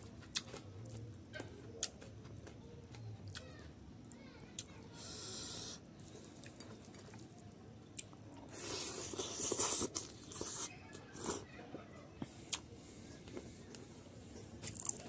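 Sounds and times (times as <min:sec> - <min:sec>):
wet chewing clicks and smacks: 0:00.0 - 0:04.7, 0:06.4 - 0:10.7
person slurping food: 0:05.0 - 0:05.8, 0:08.5 - 0:11.4.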